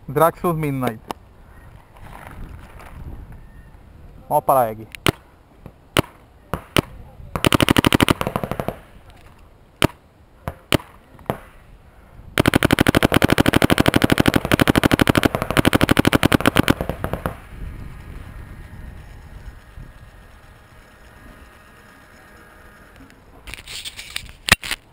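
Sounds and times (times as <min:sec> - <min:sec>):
paintball marker firing: 0:06.0 - 0:08.9, 0:09.8 - 0:11.6, 0:12.4 - 0:17.5.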